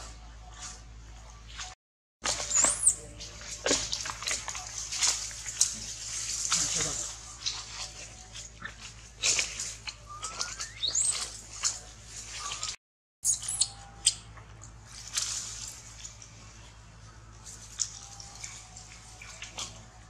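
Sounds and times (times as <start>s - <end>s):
leaves and branches rustling: 1.5s - 12.8s, 13.6s - 20.0s.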